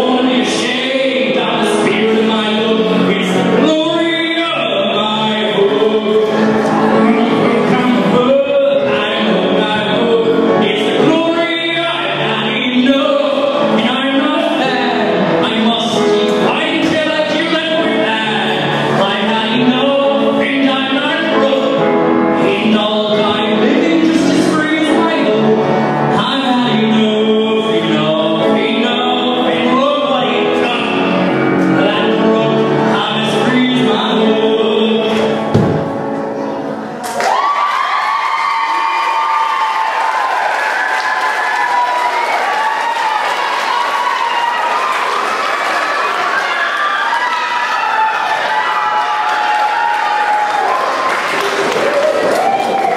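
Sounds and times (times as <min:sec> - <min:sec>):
man singing: 0:00.0 - 0:36.6
backing music: 0:00.0 - 0:52.9
piano accompaniment: 0:00.0 - 0:52.9
thump: 0:35.5 - 0:36.0.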